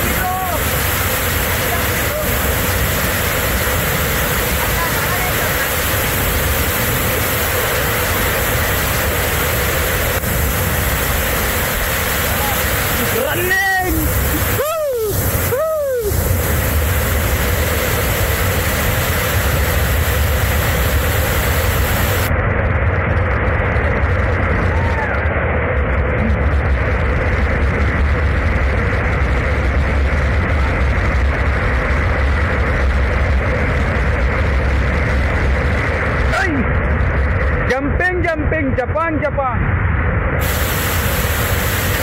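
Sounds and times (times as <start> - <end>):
waterfall rushing: 0.0 - 22.3, 40.4 - 42.0.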